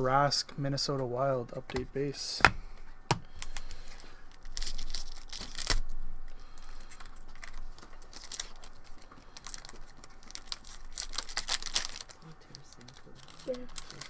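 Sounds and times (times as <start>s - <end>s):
foil wrapper tearing and crinkling: 3.3s - 14.0s.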